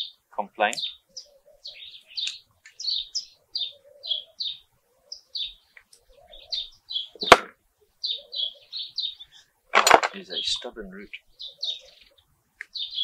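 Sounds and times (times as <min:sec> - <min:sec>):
bird chirping: 0:00.0 - 0:13.0.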